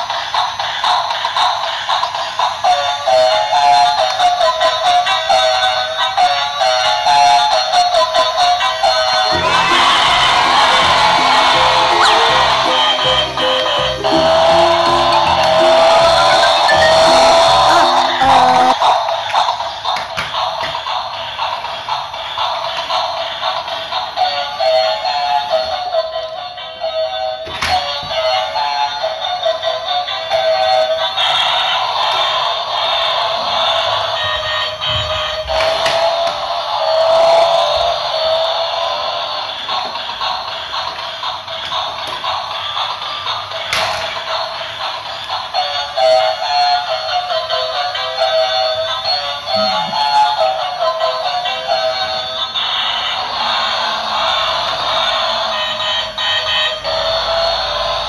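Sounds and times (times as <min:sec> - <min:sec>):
electronic tune with synthetic voice: 0:09.3 - 0:18.9, 0:49.5 - 0:50.4
toy car knocking: 0:14.6 - 0:21.0.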